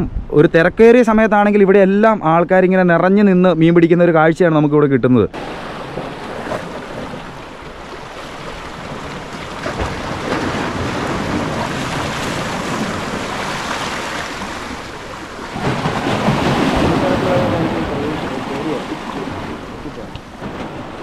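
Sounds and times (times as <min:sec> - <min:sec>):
sea surf washing in: 0:05.4 - 0:21.0
wind buffeting microphone: 0:05.4 - 0:21.0.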